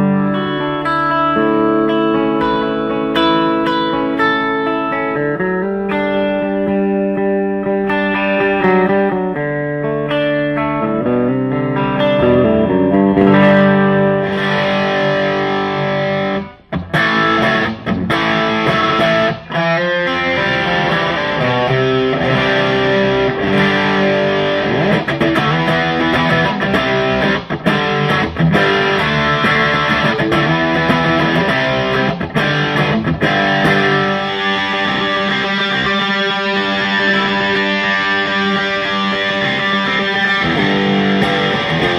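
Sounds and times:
overdriven electric guitar: 0.0 - 41.9.

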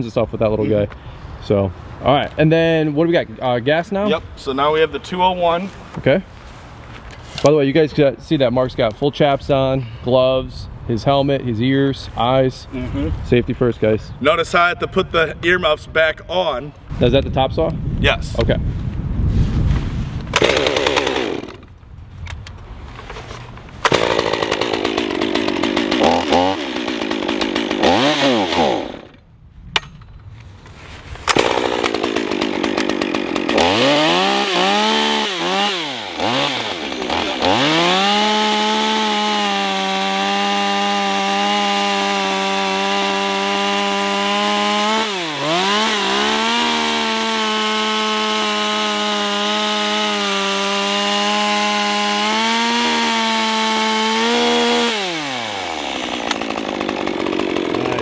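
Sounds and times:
chainsaw cutting log: 20.3 - 21.7, 23.8 - 29.2, 31.2 - 58.0
chainsaw revving: 20.4 - 21.7, 23.8 - 29.2, 31.3 - 58.0.

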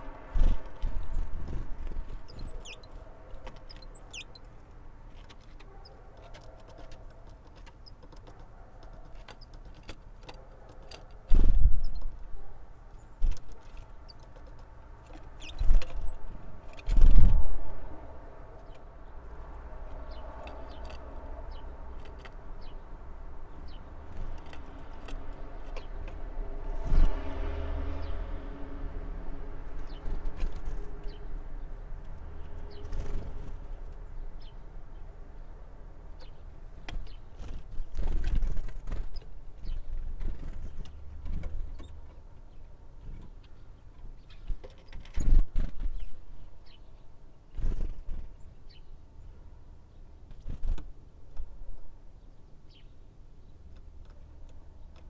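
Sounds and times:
birds pecking at seeds: 0.0 - 17.3, 18.4 - 27.3.

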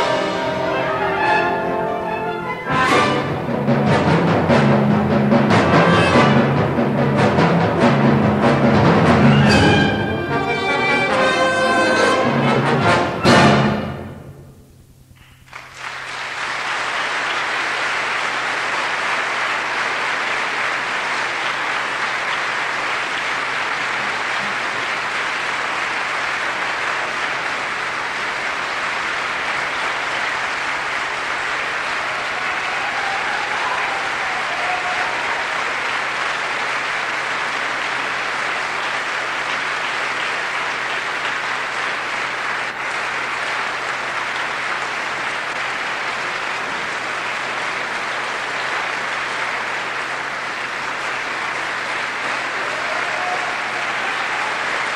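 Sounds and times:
audience applauding: 0.0 - 14.1, 15.2 - 54.9.

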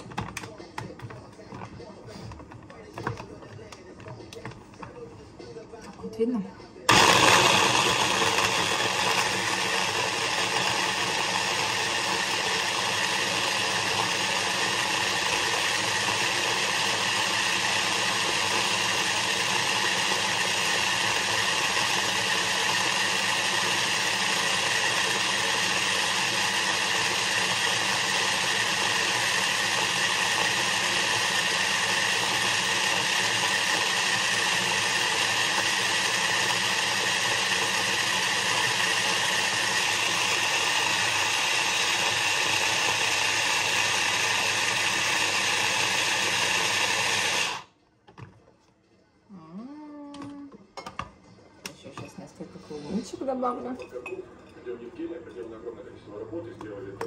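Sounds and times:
blender running: 6.9 - 47.8.

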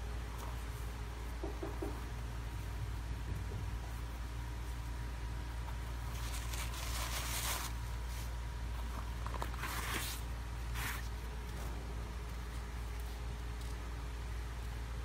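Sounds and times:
steady low hum: 0.0 - 15.0
sneaker fabric rustling and scraping: 5.6 - 13.7.

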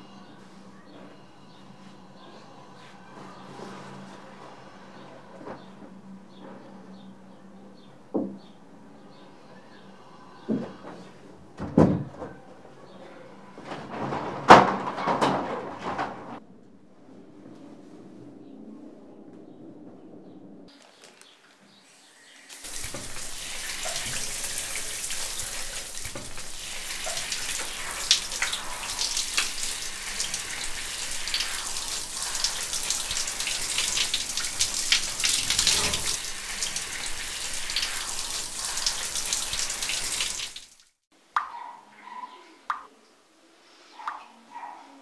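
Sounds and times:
shower water spraying: 21.2 - 41.0
water drips: 22.5 - 41.5.

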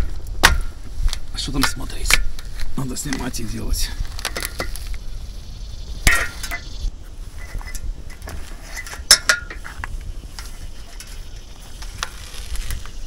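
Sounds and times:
hand tools clinking and scraping: 0.0 - 5.0, 6.0 - 13.0.

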